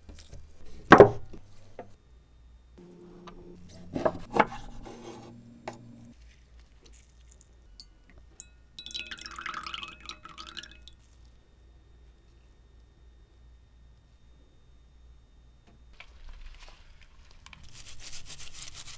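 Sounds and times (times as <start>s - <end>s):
liquid dripping into glass bowl: 7.8s - 11.1s.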